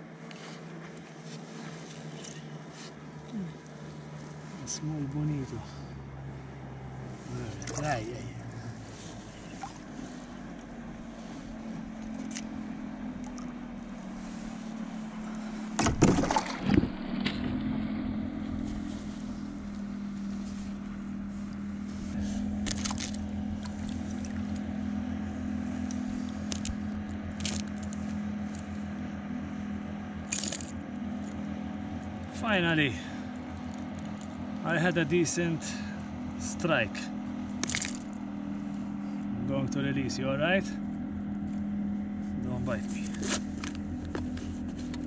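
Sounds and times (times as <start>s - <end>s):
steady low hum: 0.0s - 45.0s
water splashing: 7.5s - 8.5s, 15.8s - 17.2s, 22.6s - 24.6s.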